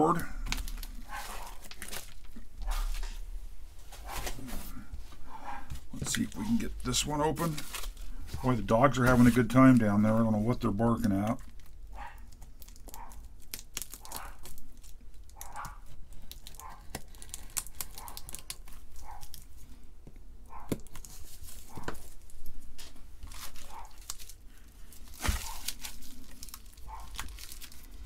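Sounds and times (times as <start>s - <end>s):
bubble wrap crinkling and tearing: 0.1s - 3.4s, 5.7s - 19.7s, 20.6s - 28.0s
dog barking: 1.1s - 1.6s, 5.3s - 5.7s, 11.9s - 12.2s, 13.0s - 13.2s, 14.0s - 14.4s, 15.4s - 15.9s, 16.6s - 16.9s, 18.0s - 18.2s, 19.0s - 19.3s, 20.5s - 20.8s, 23.7s - 24.0s, 26.8s - 27.2s.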